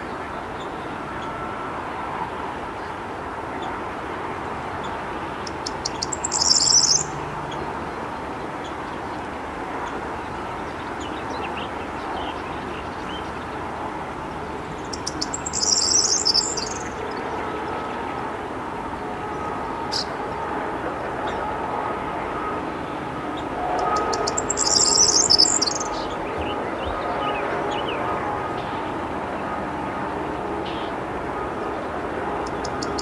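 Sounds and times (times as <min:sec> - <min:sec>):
bird song with jangling trill: 0:06.2 - 0:07.0, 0:15.3 - 0:16.7, 0:24.5 - 0:25.6.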